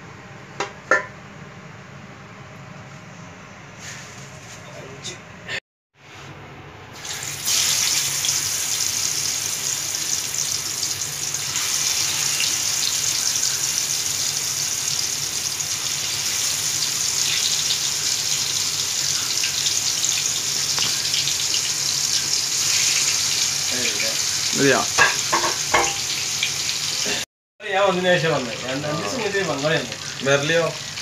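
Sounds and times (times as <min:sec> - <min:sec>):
chicken sizzling in hot oil: 0:06.9 - 0:27.2, 0:27.8 - 0:31.0.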